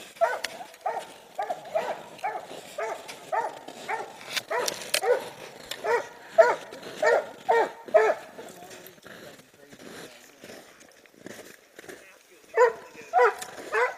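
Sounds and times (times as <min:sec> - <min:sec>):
dog barking: 0:00.2 - 0:08.5, 0:12.5 - 0:13.9.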